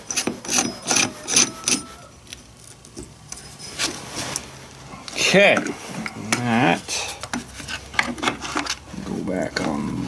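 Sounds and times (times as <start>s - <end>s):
chain rubbing on metal bar: 0.0s - 2.0s
metal chain clinking: 0.1s - 2.0s, 3.0s - 3.9s.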